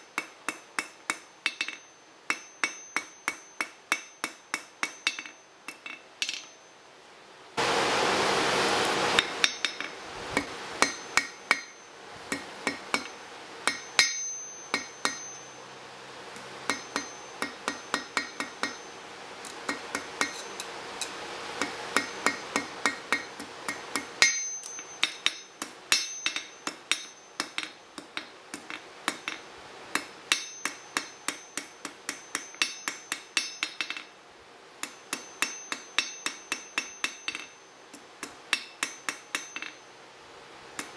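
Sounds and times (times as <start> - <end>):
hammer ringing on anvil: 0.2 - 6.8, 9.2 - 15.6, 16.7 - 19.0, 21.6 - 29.4, 30.0 - 34.1, 34.8 - 37.8, 38.5 - 39.9
loud rushing noise: 7.6 - 9.2.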